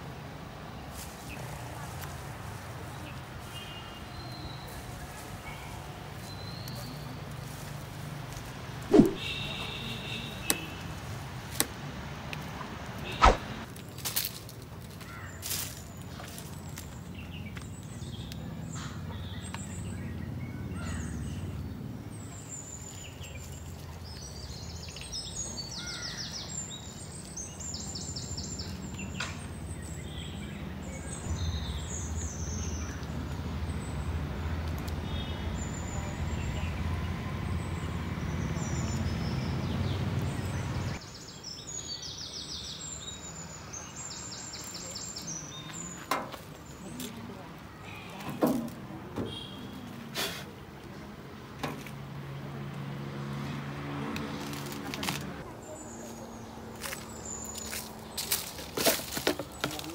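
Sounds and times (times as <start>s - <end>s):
birds chirping: 2.8s - 11.3s, 15.0s - 59.9s.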